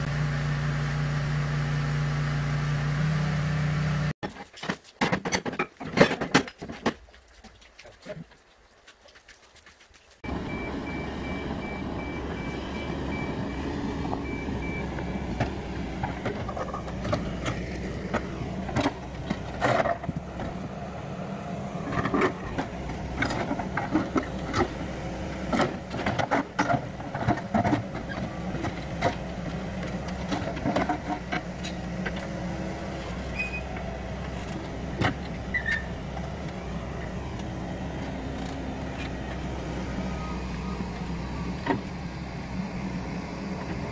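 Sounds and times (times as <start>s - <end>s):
rocks clunking and knocking: 4.2s - 10.3s, 14.0s - 20.8s, 21.8s - 39.6s
excavator diesel engine running: 10.2s - 43.9s.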